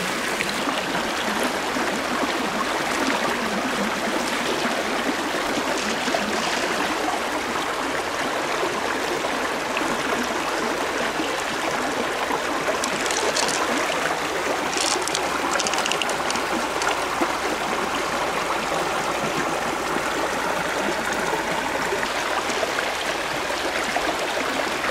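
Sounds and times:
river water over stones: 0.0s - 24.9s.

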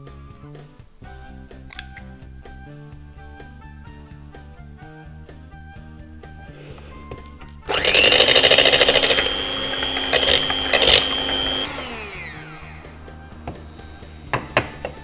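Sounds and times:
electric hand mixer whining: 7.7s - 15.0s.

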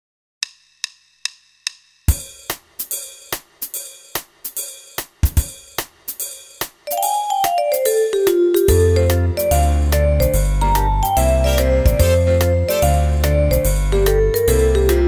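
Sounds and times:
count-in ticks: 0.4s - 1.9s
drum kit beat: 0.8s - 15.0s.

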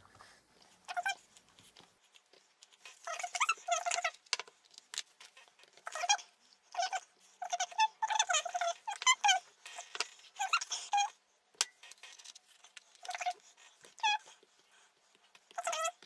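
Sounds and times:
dog whining: 3.0s - 4.2s, 5.4s - 11.2s, 13.0s - 14.8s, 15.4s - 16.0s.

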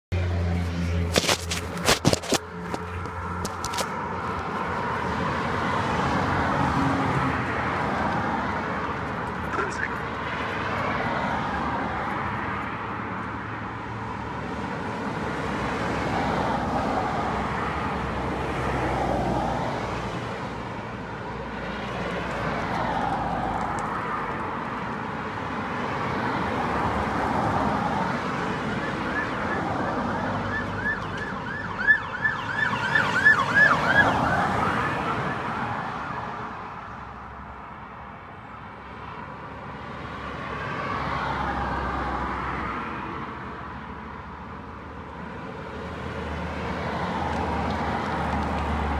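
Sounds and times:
road traffic: 0.0s - 48.9s
ambulance siren wailing: 28.6s - 36.5s.

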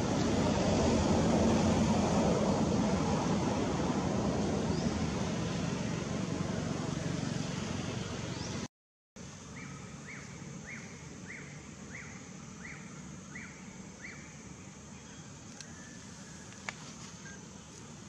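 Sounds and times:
outdoor ambience: 0.0s - 18.0s.

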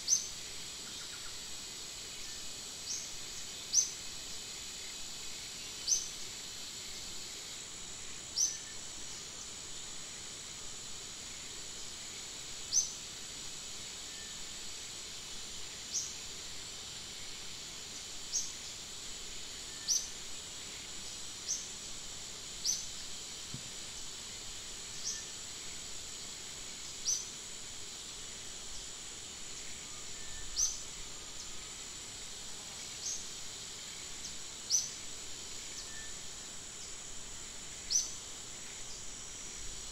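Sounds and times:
high insect drone: 0.0s - 39.9s.

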